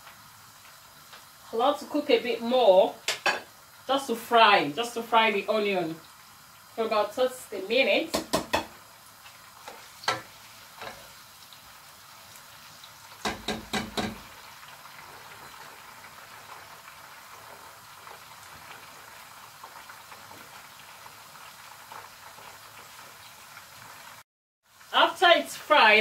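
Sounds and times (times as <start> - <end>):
onions sizzling in oil: 0.0 - 26.0
spoon knocking against pot: 8.1 - 8.8, 13.2 - 14.3.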